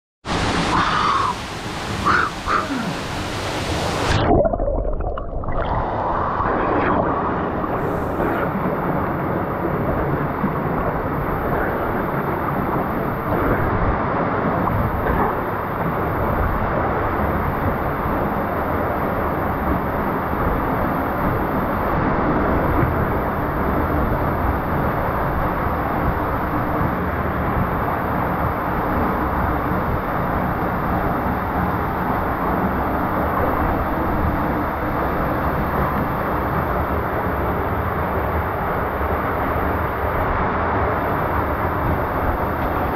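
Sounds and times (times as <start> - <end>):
waterfall rushing into pool: 0.3 - 9.2.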